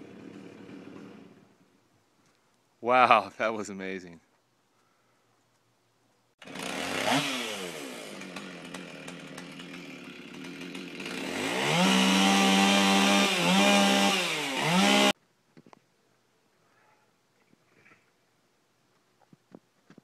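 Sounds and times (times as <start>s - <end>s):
chainsaw revving: 0.0s - 1.6s, 6.4s - 15.2s.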